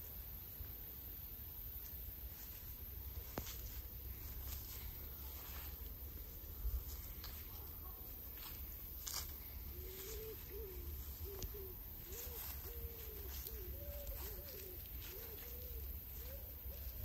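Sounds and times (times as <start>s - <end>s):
dove cooing: 9.3s - 17.0s.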